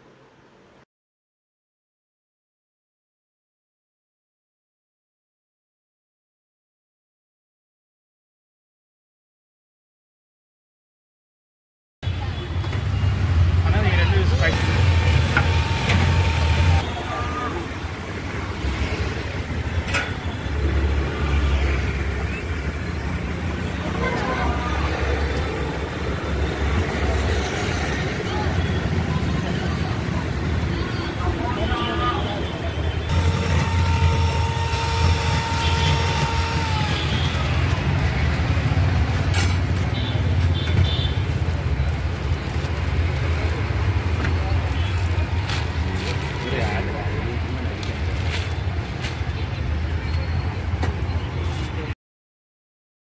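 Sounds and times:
passing traffic rumble: 12.1 - 52.0.

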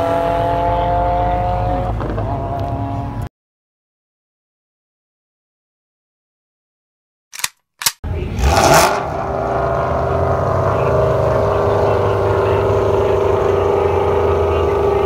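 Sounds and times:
short clicks: 7.3 - 8.0
car engine idling: 8.1 - 15.0.

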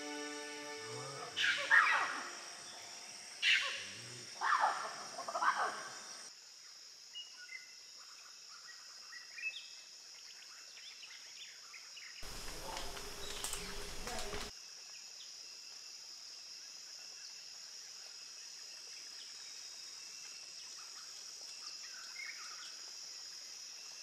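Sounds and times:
insect drone: 0.0 - 24.0
small bird chirps: 12.2 - 14.5.

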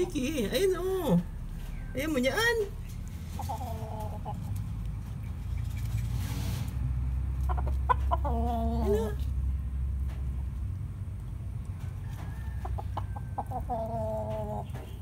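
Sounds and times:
rooster clucking: 3.2 - 4.7, 7.3 - 9.3, 12.0 - 14.8.

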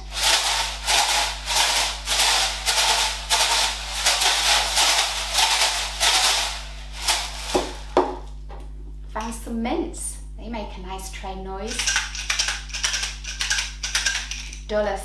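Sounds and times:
rice rattling in plastic box: 0.0 - 8.2, 11.7 - 14.6.

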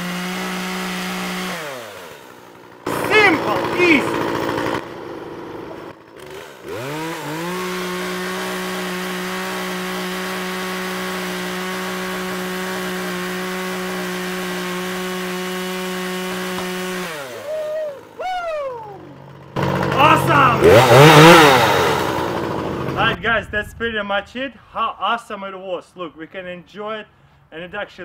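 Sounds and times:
electric chainsaw whining: 0.0 - 23.2.

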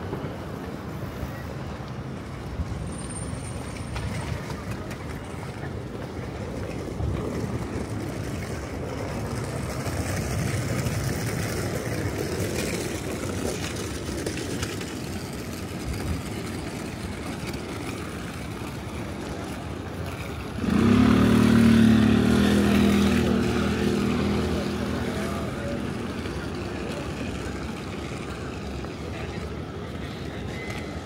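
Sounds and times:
city traffic hum: 0.0 - 31.0
vehicle engine low drone: 15.3 - 31.0.

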